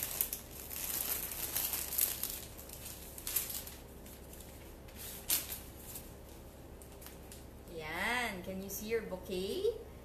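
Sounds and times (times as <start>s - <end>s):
wrapping paper crinkling: 0.0s - 7.6s.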